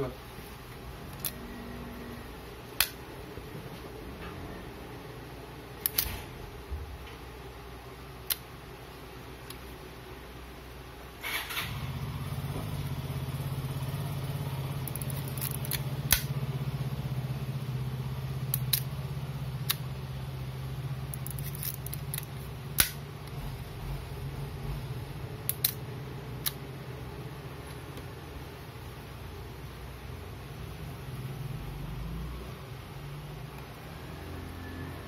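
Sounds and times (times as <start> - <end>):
low hum: 0.5 - 7.1.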